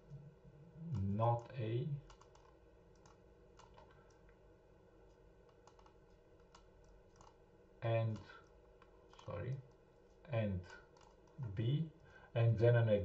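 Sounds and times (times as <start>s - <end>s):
low room hum: 0.0s - 13.0s
faint computer mouse clicks: 2.0s - 4.4s, 5.1s - 7.4s, 8.1s - 11.4s.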